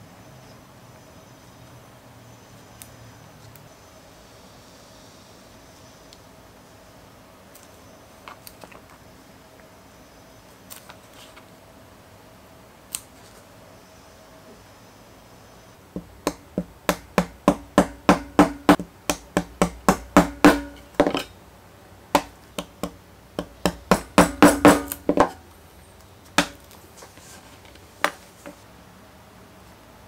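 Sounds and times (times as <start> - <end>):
maul striking steel chisel: 16.0 - 21.3, 22.2 - 25.4.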